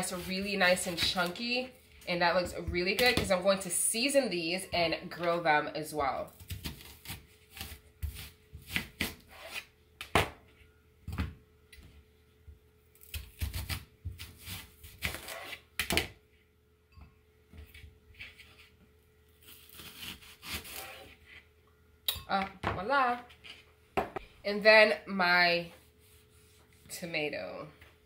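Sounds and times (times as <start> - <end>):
knife slicing onion on plastic board: 6.3 - 10.4.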